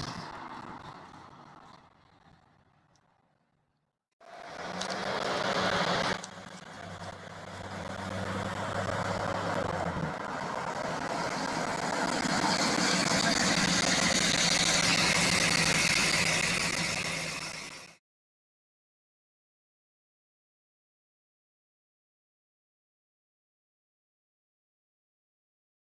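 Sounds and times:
pickup truck engine driving: 4.2 - 18.0.

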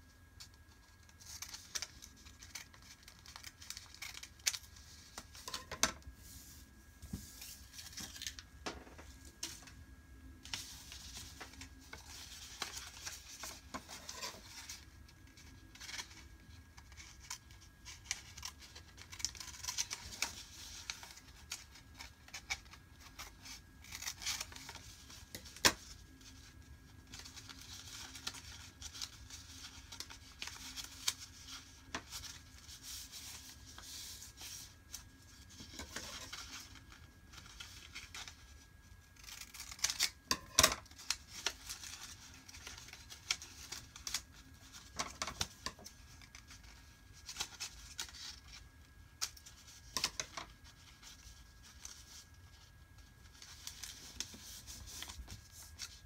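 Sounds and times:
paper rustling and creasing: 0.4 - 56.0
scissors snipping paper: 1.0 - 4.7, 16.8 - 25.8, 39.1 - 44.3.

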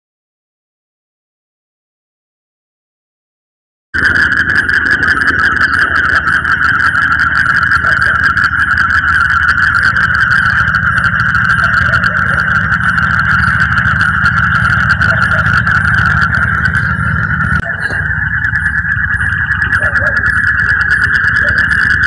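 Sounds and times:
car engine idling: 4.0 - 22.0
high-pitched whine: 4.0 - 22.0.

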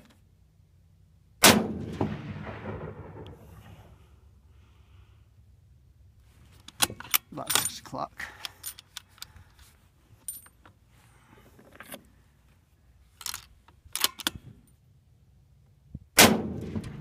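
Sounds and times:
rifle shot with echo: 1.4 - 3.9, 16.2 - 17.0
rifle bolt clicks: 13.2 - 14.4.

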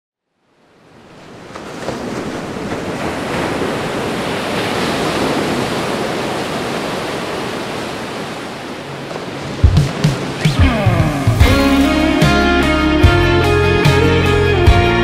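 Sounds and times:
waves breaking on beach: 0.3 - 12.5.

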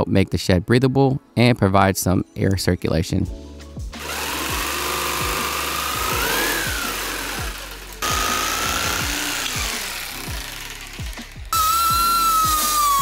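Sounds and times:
background music with steady beat: 0.0 - 13.0
jigsaw motor whine cutting wood: 4.0 - 13.0.

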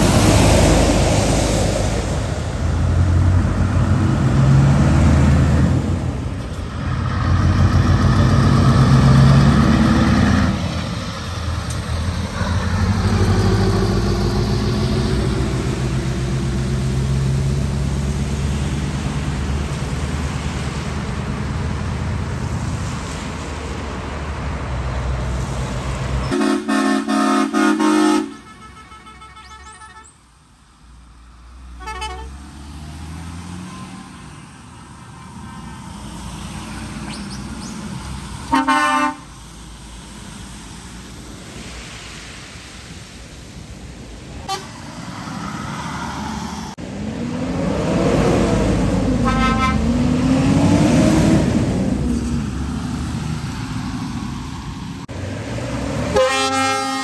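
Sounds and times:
lorry passing by: 0.0 - 26.4, 31.2 - 56.2
lorry diesel engines: 0.0 - 57.0
air horn toots: 26.2 - 30.2, 31.8 - 32.4, 38.5 - 39.3, 44.5 - 44.7, 49.2 - 49.9, 56.1 - 57.0.

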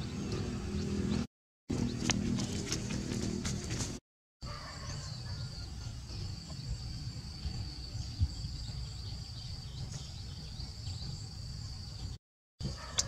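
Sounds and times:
insects droning: 4.4 - 13.0
bird chirps: 4.8 - 12.2.

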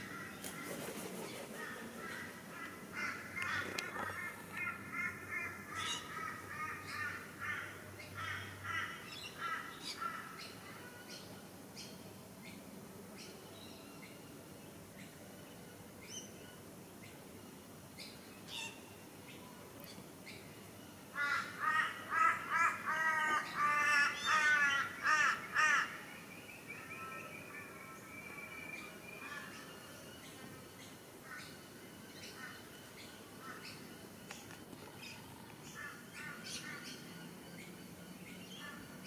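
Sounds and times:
crow cawing: 21.2 - 26.0.

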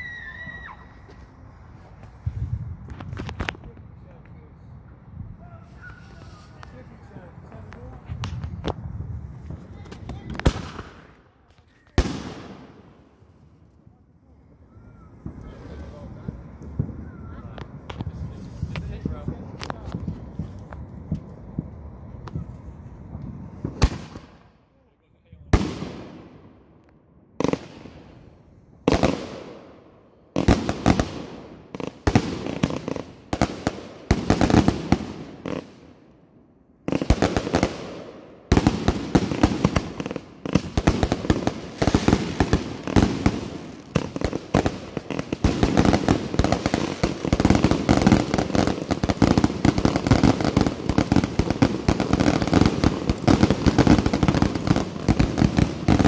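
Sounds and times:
rapid firework barrage and crackling: 5.6 - 11.2, 30.4 - 35.8, 36.9 - 56.0.

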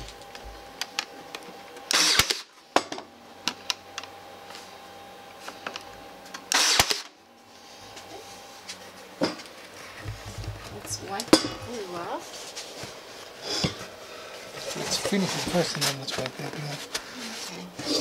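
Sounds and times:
nail gun firing: 1.9 - 2.5, 6.5 - 7.1.

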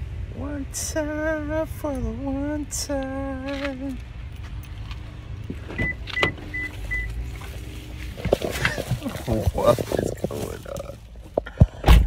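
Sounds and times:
car door clicks: 4.9 - 7.2
car warning chime beeps: 5.7 - 7.2.

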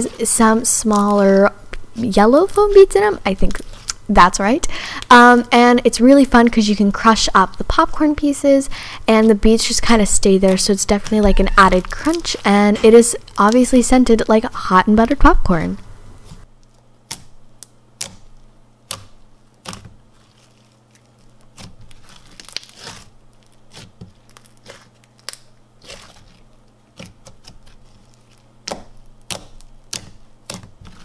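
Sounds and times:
slime crackling and popping: 0.0 - 1.4, 10.1 - 14.3, 16.5 - 31.0.

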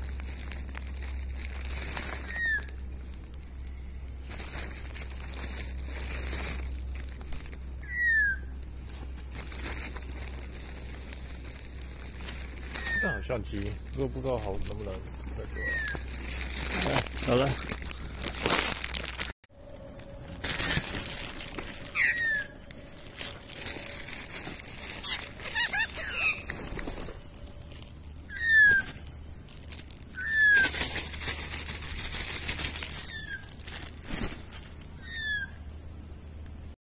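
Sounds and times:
bird whistled call: 2.2 - 2.8, 7.8 - 8.5, 12.8 - 13.3, 15.5 - 16.0, 21.9 - 22.6, 28.3 - 29.0, 30.2 - 30.7
birds flapping wings: 20.4 - 29.2, 30.1 - 34.9.

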